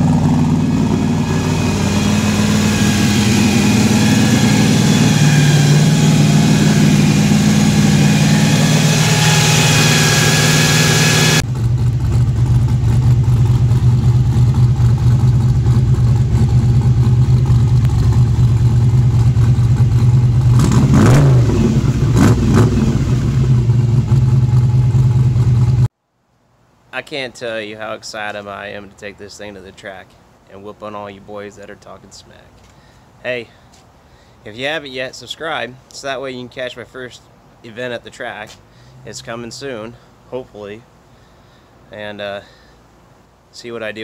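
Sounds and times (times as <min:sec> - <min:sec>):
engine revving: 0:00.0 - 0:25.9
pickup engine idling: 0:00.0 - 0:25.9.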